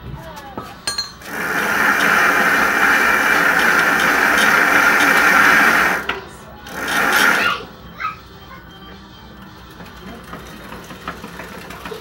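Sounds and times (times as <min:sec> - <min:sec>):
bicycle chain whirring: 0:01.2 - 0:07.7, 0:09.4 - 0:12.0.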